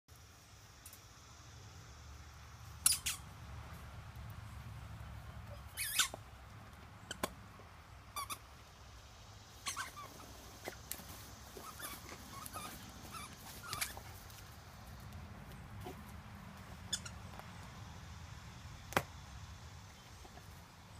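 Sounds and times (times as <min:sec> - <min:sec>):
squeaky dog toy squeaks: 0:02.8 - 0:03.2, 0:05.5 - 0:06.2, 0:08.2 - 0:08.4, 0:09.6 - 0:10.8, 0:11.6 - 0:14.0, 0:16.9 - 0:17.1.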